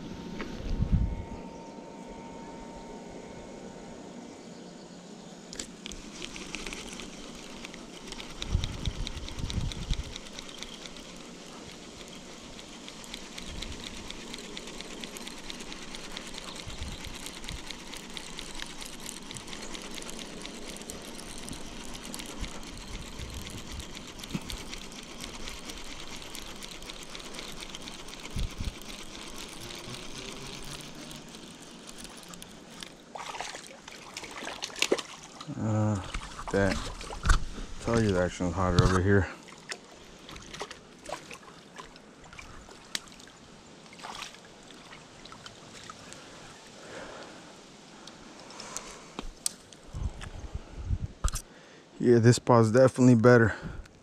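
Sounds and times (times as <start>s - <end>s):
fishing reel gears ticking: 5.9s - 33.0s.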